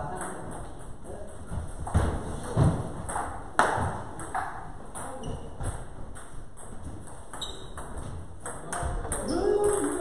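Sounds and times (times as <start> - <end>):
ball bouncing on table: 1.5 - 10.0
ping pong ball clicking off paddles: 3.0 - 10.0.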